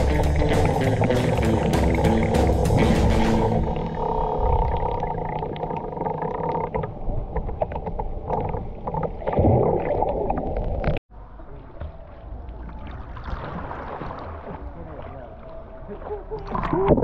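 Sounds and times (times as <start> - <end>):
underwater rumble: 0.0 - 17.0
underwater clicks and crackles: 4.0 - 11.0.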